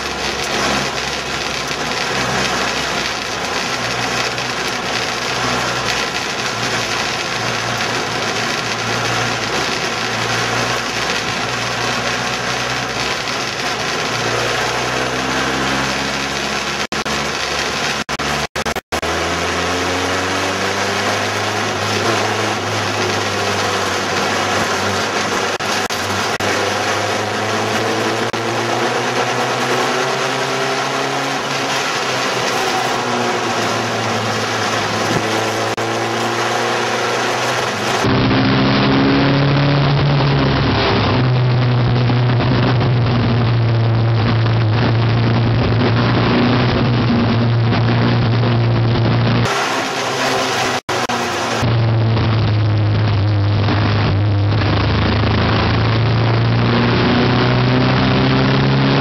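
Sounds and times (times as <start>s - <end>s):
race car engines passing: 0.0s - 42.0s, 49.4s - 51.8s.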